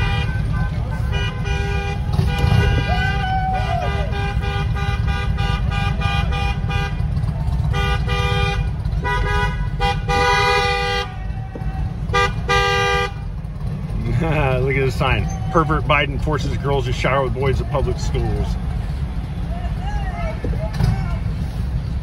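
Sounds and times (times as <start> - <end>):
vehicle horns honking: 0.0 - 13.9
vehicle rumbling slowly: 0.0 - 22.0.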